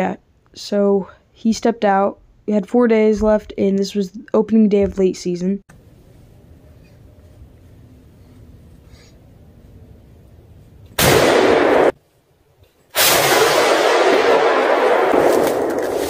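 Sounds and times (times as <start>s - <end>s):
rifle shot: 11.0s - 12.0s, 12.9s - 16.0s.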